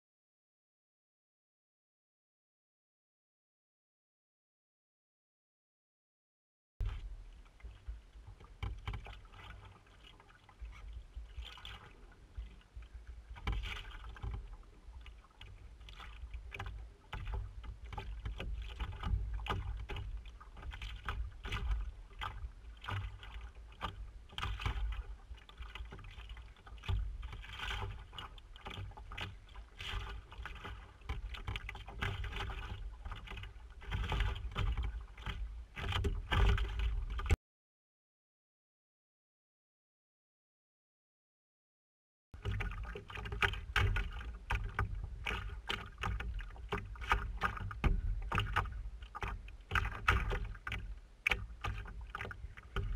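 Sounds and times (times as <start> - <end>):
paddle splashing water: 6.8 - 37.4, 42.4 - 52.9.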